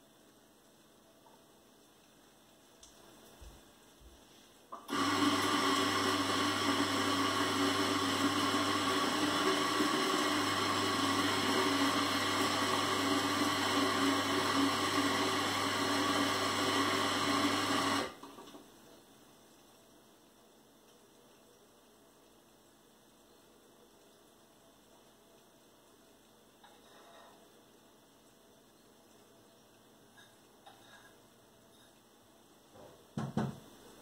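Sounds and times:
coffee grinder motor whirring: 4.8 - 18.2.

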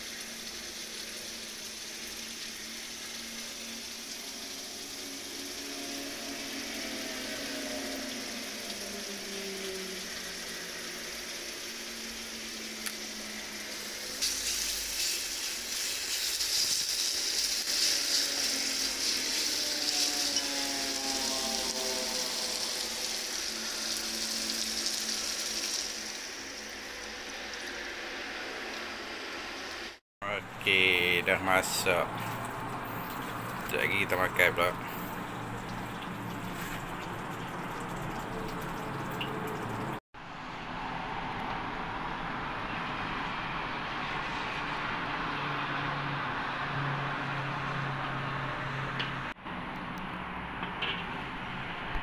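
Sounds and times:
chicken sizzling in a wok: 0.0 - 29.9
coconut milk pouring: 6.7 - 28.7, 30.8 - 40.0.

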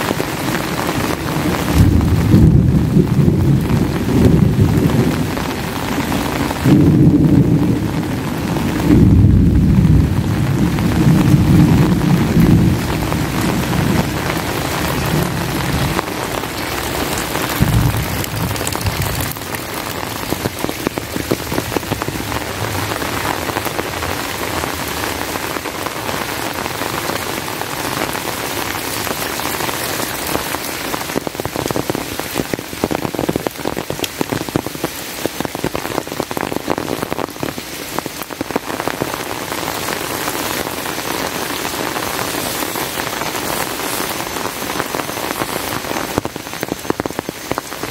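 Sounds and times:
heavy rain falling: 0.0 - 47.9
low rumble of thunder: 1.4 - 5.7, 6.5 - 25.2.

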